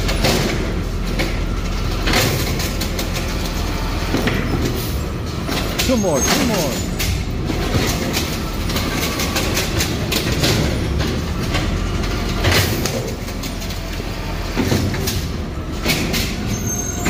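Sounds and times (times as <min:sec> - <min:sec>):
garbage truck idling: 0:00.0 - 0:17.0
knocks and rattles of carts: 0:00.0 - 0:17.0.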